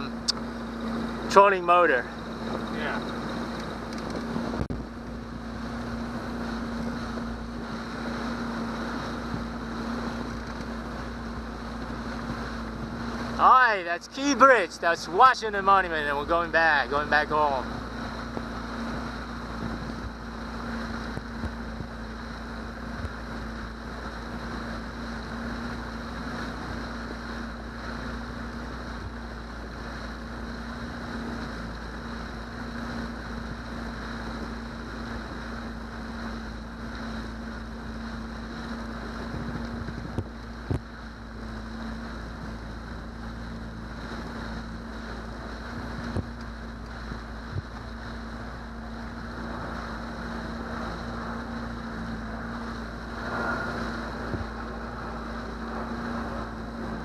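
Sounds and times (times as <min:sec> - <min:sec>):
outboard motor running: 0:00.0 - 0:57.0
wind on microphone: 0:17.6 - 0:57.0.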